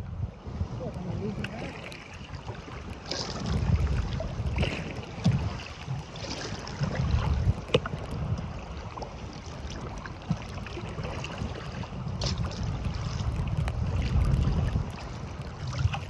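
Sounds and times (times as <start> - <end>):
strong wind buffeting microphone: 0.0 - 16.0
waves slapping against kayak hull: 0.0 - 16.0.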